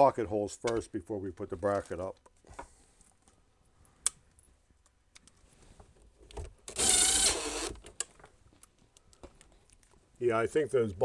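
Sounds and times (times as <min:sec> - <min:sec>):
cordless drill motor whine: 0:06.7 - 0:07.8.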